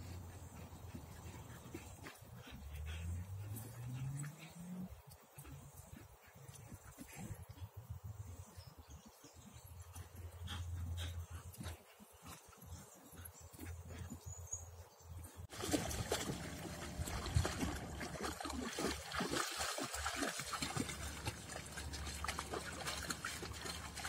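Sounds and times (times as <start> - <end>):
dogs splashing through water: 15.4 - 24.0.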